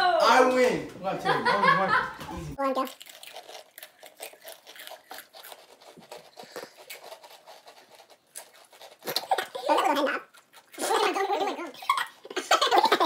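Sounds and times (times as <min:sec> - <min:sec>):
chips being chewed: 0:02.6 - 0:11.2
chips rustling: 0:02.8 - 0:10.8.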